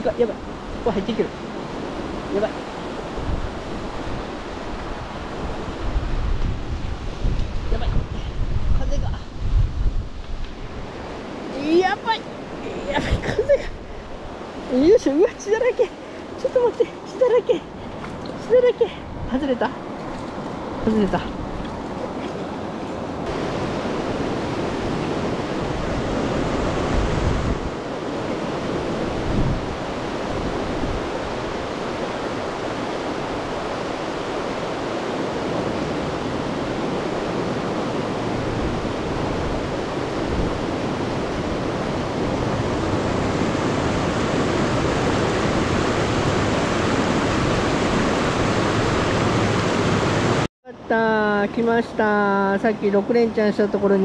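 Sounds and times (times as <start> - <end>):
wind buffeting microphone: 0.0 - 50.5
river current rushing: 0.0 - 54.0.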